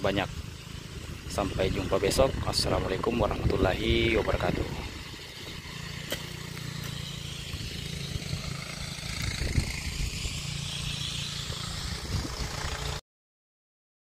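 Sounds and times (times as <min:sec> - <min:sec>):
low motor hum: 0:00.0 - 0:13.0
wind buffeting microphone: 0:01.1 - 0:05.7, 0:07.5 - 0:13.0.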